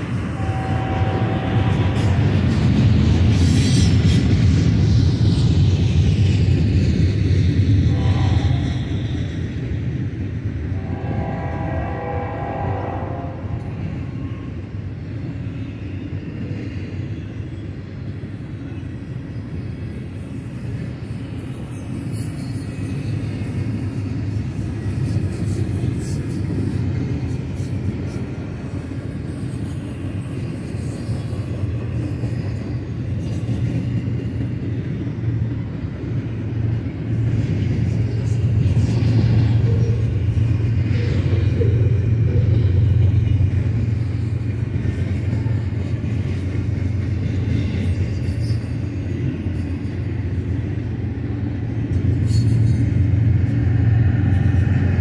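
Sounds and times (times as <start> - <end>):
freight train rumbling on rails: 0.0 - 55.0
locomotive horn: 0.2 - 2.2, 7.9 - 8.7, 10.8 - 13.8.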